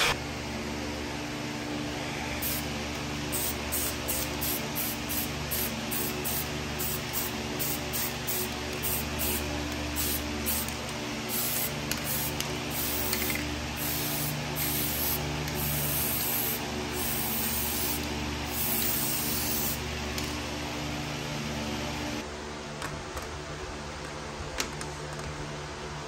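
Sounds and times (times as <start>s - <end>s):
machine humming: 0.0s - 22.4s
air gun hissing bursts: 2.4s - 19.8s.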